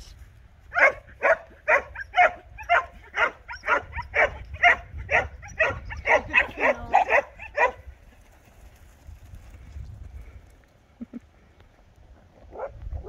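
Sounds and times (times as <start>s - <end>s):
dog barking: 0.7s - 7.8s, 12.5s - 12.8s.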